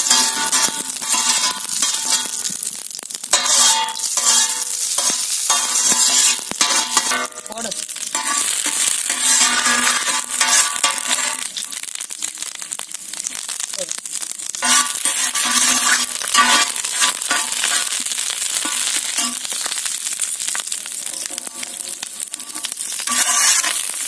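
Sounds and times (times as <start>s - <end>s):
metal ladle stirring: 0.0s - 2.6s, 3.3s - 11.7s, 14.6s - 19.5s, 21.0s - 24.0s
seeds sizzling in hot oil: 0.0s - 24.0s.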